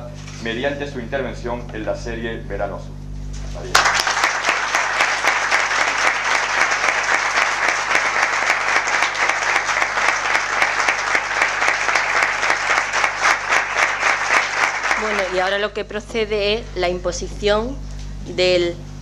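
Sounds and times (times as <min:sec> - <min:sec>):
audience applauding: 0:03.6 - 0:15.7.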